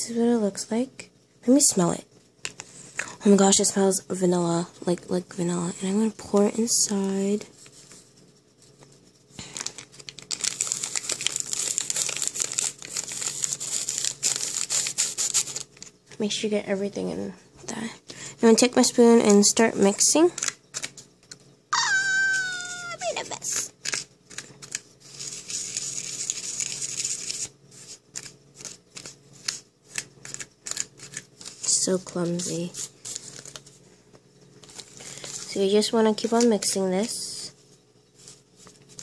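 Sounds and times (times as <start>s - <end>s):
foil packet crinkling: 8.8s - 16.0s, 20.4s - 21.0s, 22.4s - 33.8s, 34.6s - 37.1s.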